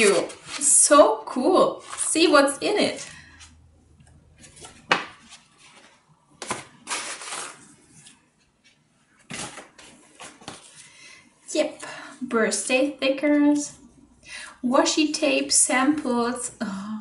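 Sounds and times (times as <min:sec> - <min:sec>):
paper and plastic rustling: 0:00.0 - 0:03.4, 0:04.4 - 0:11.0.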